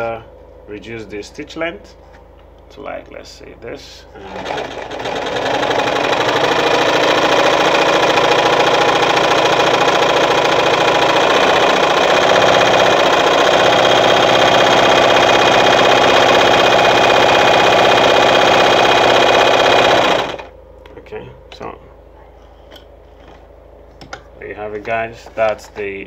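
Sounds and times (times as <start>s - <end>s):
sewing machine clattering: 4.2s - 20.5s.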